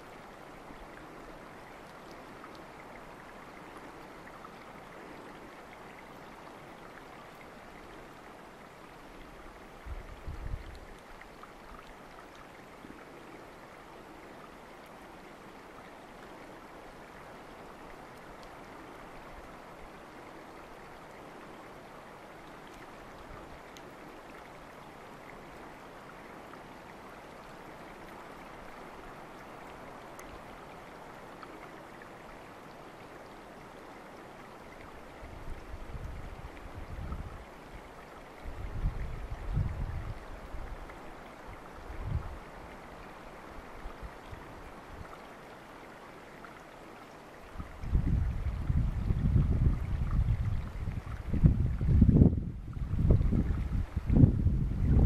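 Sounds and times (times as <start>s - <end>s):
stream water rushing: 0.0s - 55.0s
faint ticks: 22.4s - 24.6s, 29.3s - 31.8s.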